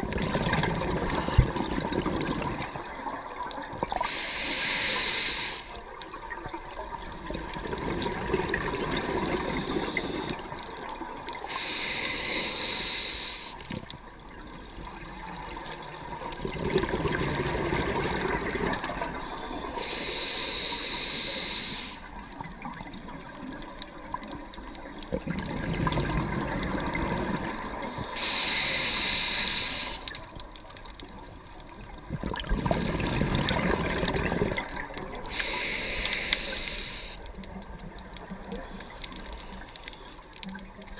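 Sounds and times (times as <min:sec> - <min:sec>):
exhaled bubbles rumbling: 0:00.0 - 0:04.0, 0:06.2 - 0:11.3, 0:14.3 - 0:19.2, 0:25.0 - 0:28.0, 0:31.8 - 0:35.4
regulator inhale hiss: 0:01.0 - 0:01.6, 0:03.9 - 0:05.8, 0:09.0 - 0:10.5, 0:11.4 - 0:13.8, 0:19.2 - 0:22.2, 0:27.8 - 0:30.2, 0:35.2 - 0:37.3.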